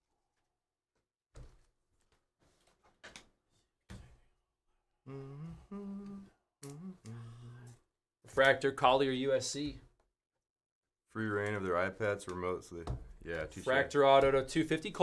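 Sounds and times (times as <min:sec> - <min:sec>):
man humming: 0:05.1 - 0:07.9.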